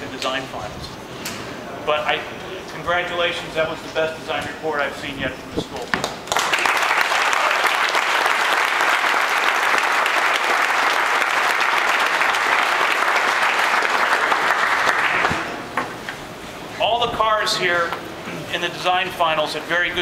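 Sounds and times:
crowd applauding: 6.0s - 15.6s.

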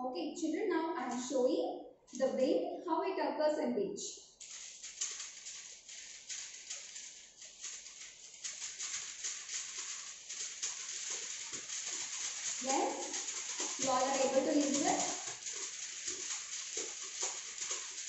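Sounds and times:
paper rustling and flapping: 4.4s - 18.0s.

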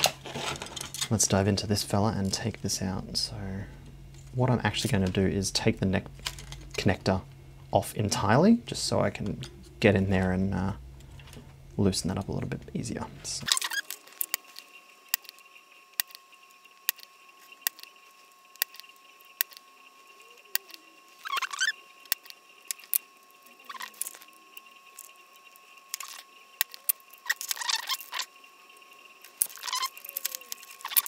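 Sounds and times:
desoldering pump clicks: 18.6s - 19.6s, 22.1s - 23.0s
circuit board scratching on mat: 20.5s - 25.2s, 25.9s - 28.3s, 29.4s - 31.0s
faint steady high tone: 26.3s - 31.0s.

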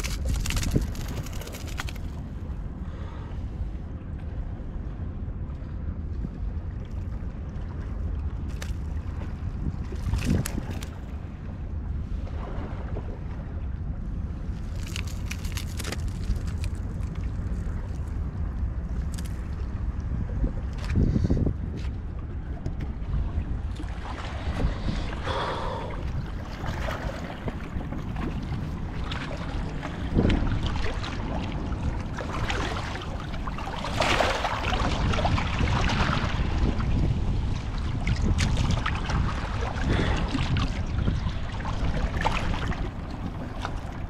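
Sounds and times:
small waves sloshing against rocks: 0.0s - 2.2s, 9.8s - 11.2s, 14.6s - 18.2s, 23.7s - 44.0s
wind buffeting microphone: 0.0s - 44.0s
splash in shallow water: 28.4s - 37.0s.

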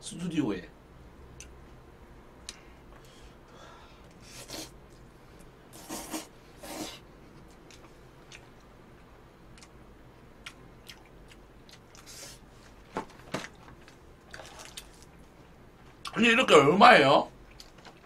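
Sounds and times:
person chewing: 5.8s - 9.7s, 10.4s - 12.4s, 13.8s - 15.2s.

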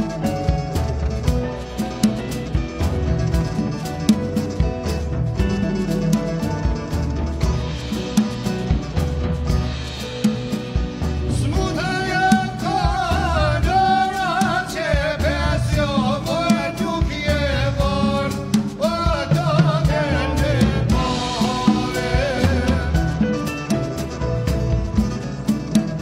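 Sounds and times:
band with drum kit: 0.0s - 26.0s
man singing: 11.2s - 24.3s.

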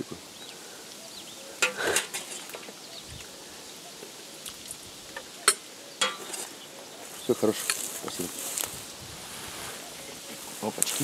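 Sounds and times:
bowls and spoons clinking: 5.4s - 6.5s.

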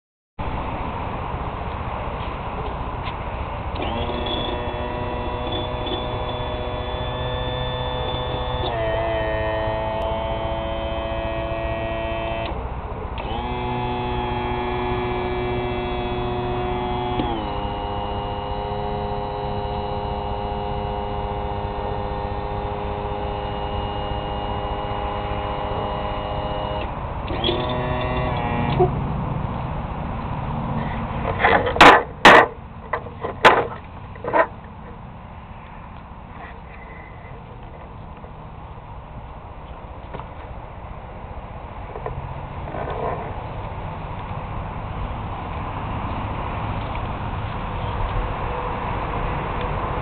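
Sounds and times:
electric trim motor humming: 3.7s - 28.9s.

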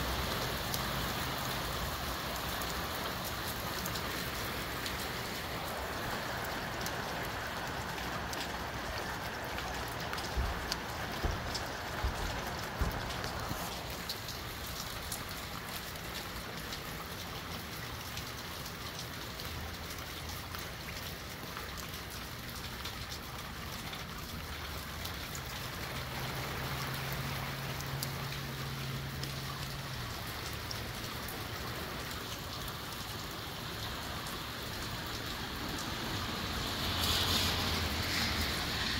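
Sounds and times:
windy rain shower: 0.0s - 38.9s
low thumps: 10.3s - 13.6s.

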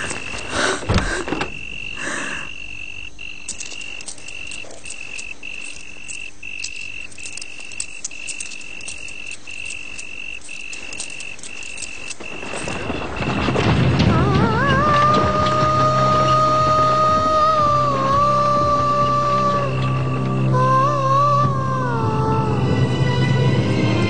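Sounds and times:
insect clicks: 0.0s - 16.4s
cricket trill: 0.0s - 24.0s.

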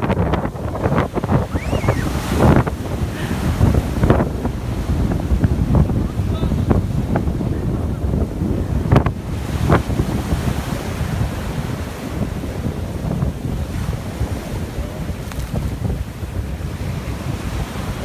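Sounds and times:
waves sloshing: 0.0s - 18.0s
wind buffeting microphone: 0.0s - 18.0s.

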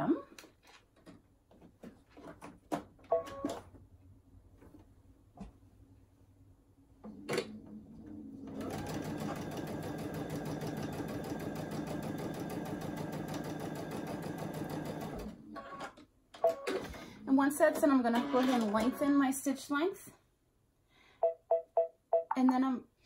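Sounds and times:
sewing machine stitching: 8.4s - 15.8s.

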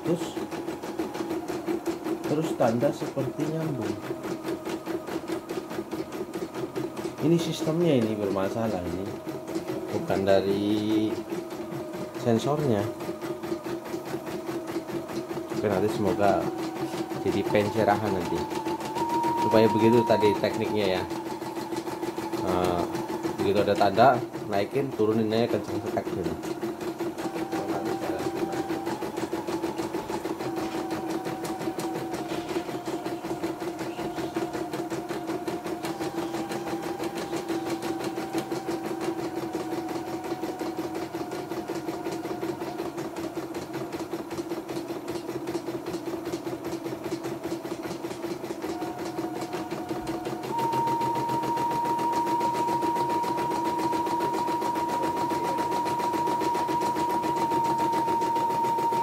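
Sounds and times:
embroidery machine stitching: 0.0s - 59.0s
high machine whine: 0.0s - 59.0s.

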